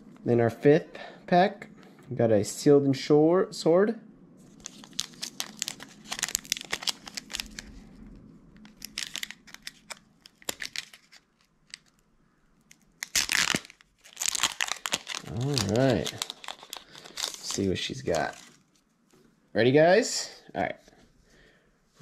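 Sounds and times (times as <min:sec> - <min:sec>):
foil wrapper crinkling and tearing: 0:04.5 - 0:08.0, 0:08.6 - 0:12.0, 0:12.6 - 0:18.8.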